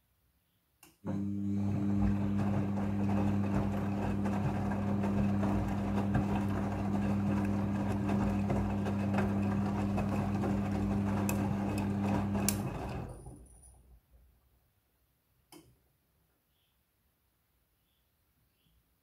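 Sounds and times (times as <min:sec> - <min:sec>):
washing machine motor hum: 0:01.0 - 0:13.5
water and laundry sloshing: 0:01.2 - 0:13.2.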